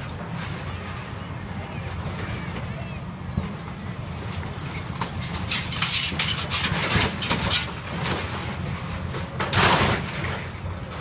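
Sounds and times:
excavator diesel engine rumble: 0.0s - 11.0s
wood and sheet metal breaking: 5.6s - 10.6s.

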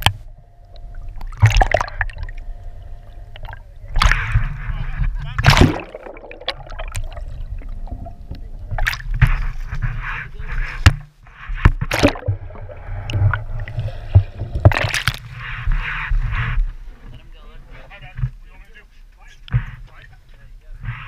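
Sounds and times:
low rumble: 0.0s - 11.3s, 12.1s - 17.3s
water splashing against camera: 0.0s - 17.2s
rushing water: 5.4s - 9.2s.

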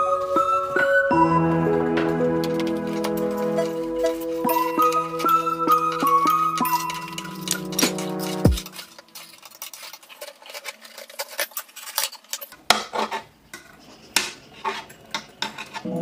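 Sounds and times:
background music: 0.0s - 8.8s
metal chain clicking on rod: 4.8s - 12.6s.

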